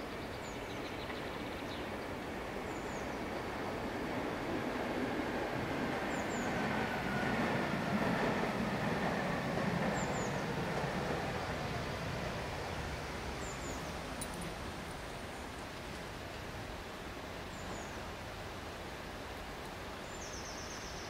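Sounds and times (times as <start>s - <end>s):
tram wheels rumbling on rails: 0.8s - 16.9s.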